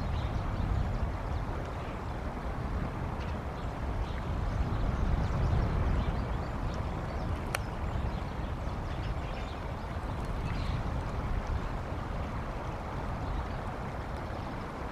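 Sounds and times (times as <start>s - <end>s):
wind rumbling on microphone: 0.0s - 14.9s
faint high ticks: 7.4s - 7.7s.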